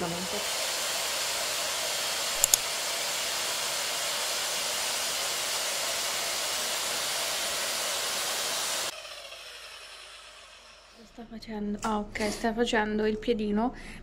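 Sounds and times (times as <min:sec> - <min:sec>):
saw motor whirring: 0:02.4 - 0:02.6
sharp clicks: 0:02.4 - 0:02.6.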